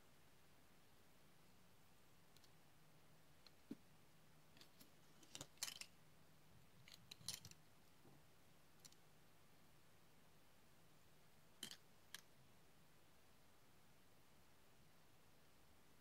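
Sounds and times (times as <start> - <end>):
low steady hum: 0.0 - 16.0
padlock parts clicking and clinking: 4.6 - 5.9, 6.8 - 7.6.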